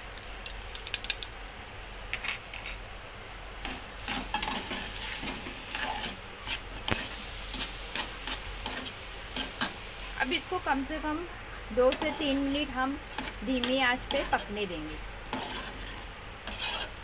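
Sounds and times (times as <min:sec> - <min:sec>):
soft sizzling: 0:03.6 - 0:17.0
metal spoon scraping saucepan: 0:04.1 - 0:06.6, 0:11.9 - 0:14.6, 0:15.3 - 0:17.0.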